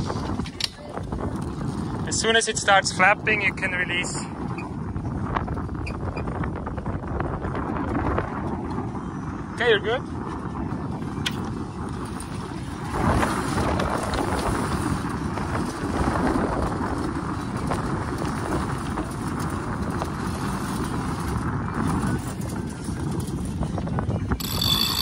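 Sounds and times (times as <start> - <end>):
wind buffeting: 0.0 - 25.0
sail cloth flapping and rustling: 10.1 - 24.2.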